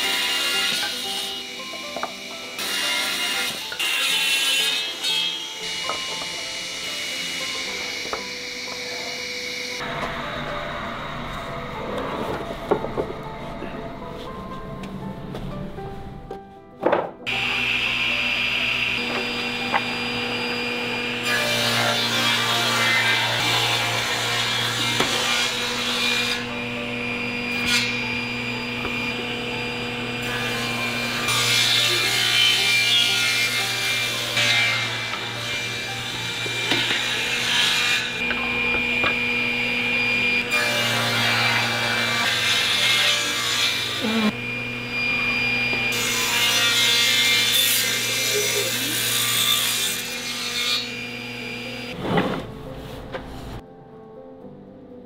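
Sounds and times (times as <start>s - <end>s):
saw cutting hiss: 0.0s - 9.8s
planer cutting wood: 0.0s - 12.5s, 17.3s - 52.0s
wood planer motor hum: 4.6s - 13.8s, 17.3s - 52.0s.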